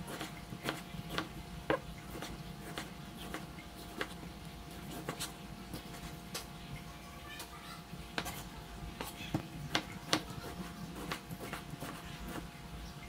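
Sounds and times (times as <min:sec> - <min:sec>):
knife chopping on wooden board: 0:00.0 - 0:04.2, 0:08.2 - 0:12.5.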